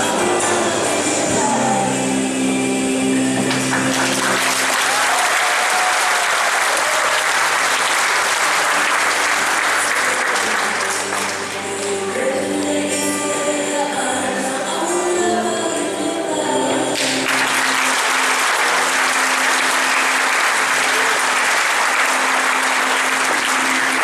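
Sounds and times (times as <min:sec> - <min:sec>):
group singing: 0:00.0 - 0:04.7, 0:09.6 - 0:19.7
audience applause: 0:03.4 - 0:11.9, 0:17.0 - 0:24.0.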